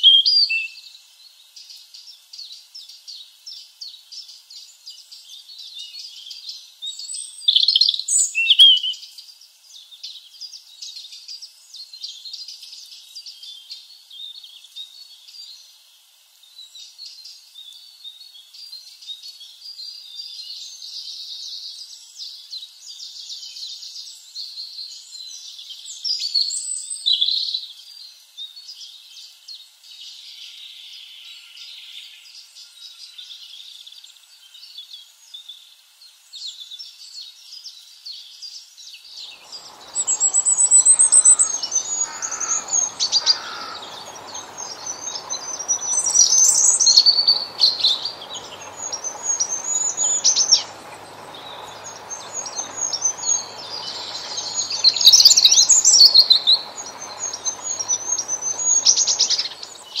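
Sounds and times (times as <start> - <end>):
bird singing high thin notes: 39.2 - 60.0.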